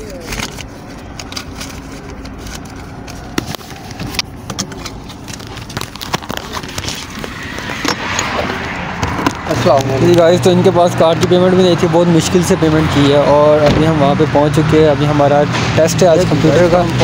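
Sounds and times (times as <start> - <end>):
wallet and phone handled: 0.0 - 10.2.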